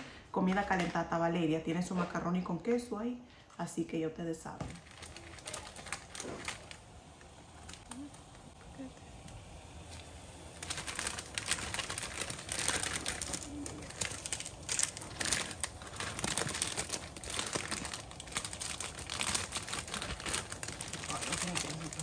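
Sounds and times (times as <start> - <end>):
plastic packaging crinkling: 4.6 - 22.0.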